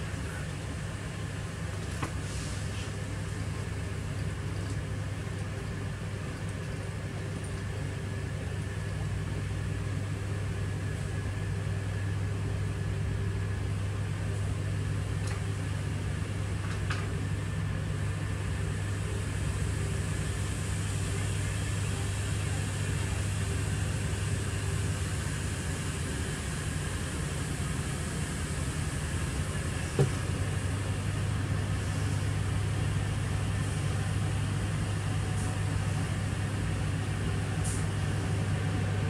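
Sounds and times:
diesel engine idling: 17.2 - 39.0.

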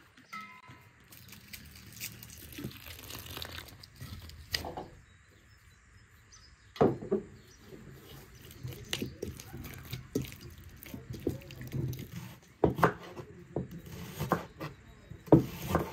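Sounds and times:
liquid pouring and splashing: 1.1 - 4.3, 8.4 - 12.3
hand mixing dough: 7.6 - 15.9.

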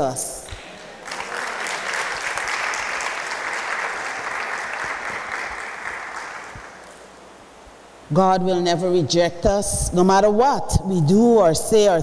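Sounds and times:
congregation applauding: 0.5 - 7.2.

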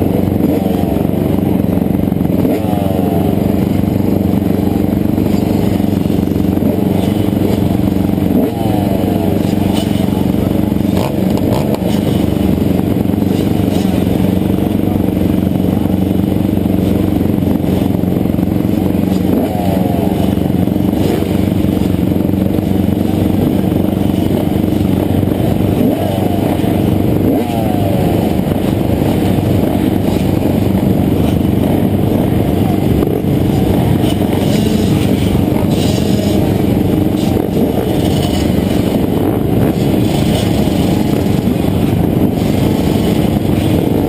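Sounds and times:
dirt bike engine revving: 0.0 - 44.0
dirt bikes idling: 0.0 - 44.0.

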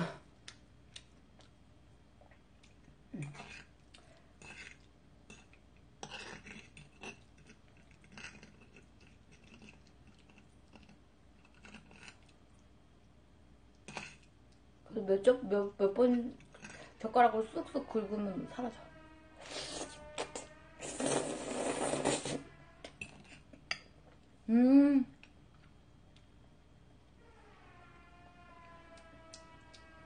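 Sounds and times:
soft chewing: 0.2 - 14.8, 16.0 - 17.0.

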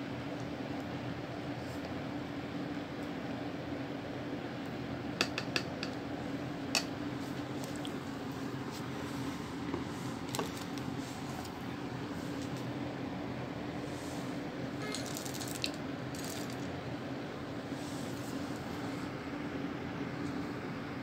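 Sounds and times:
steady low hum: 0.0 - 21.0
chocolate chips clattering into bowl: 14.8 - 16.6.

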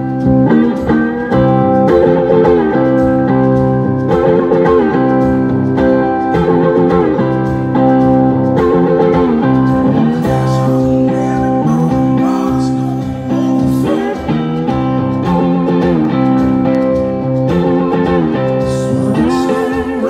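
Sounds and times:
live blues-rock band: 0.0 - 20.0
slide guitar: 0.0 - 20.0
man singing: 9.9 - 15.7, 18.6 - 20.0.

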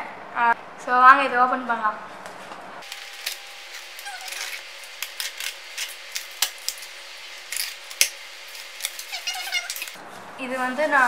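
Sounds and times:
blade slitting packing tape: 2.8 - 10.0.

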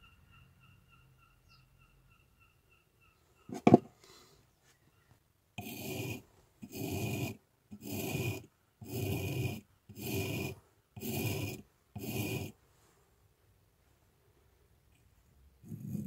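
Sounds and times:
chisel scraping on sharpening stone: 5.6 - 12.5.

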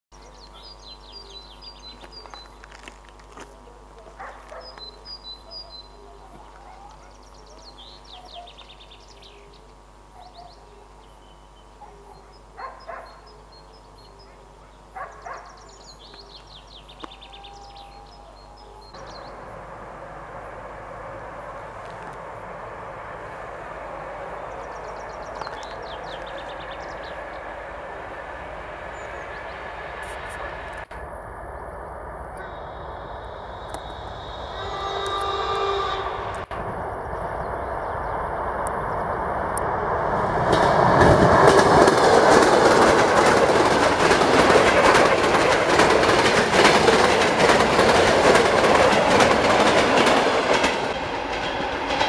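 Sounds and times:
songbirds chirping and singing: 0.2 - 2.6, 3.6 - 19.5, 24.2 - 30.0
electric train rumbling: 0.2 - 52.0.

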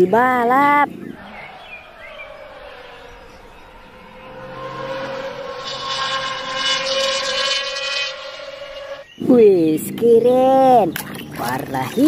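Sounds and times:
racing car engine passing: 0.8 - 9.2.

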